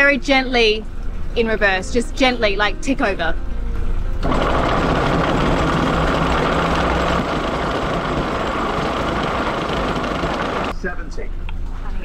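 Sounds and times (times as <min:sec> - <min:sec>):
boat engine ticking over: 0:04.2 - 0:10.7.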